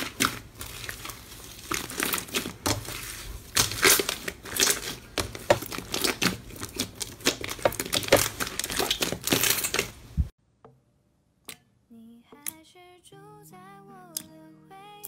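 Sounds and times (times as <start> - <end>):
slime squeezed by hand crackling: 0.0 - 10.2.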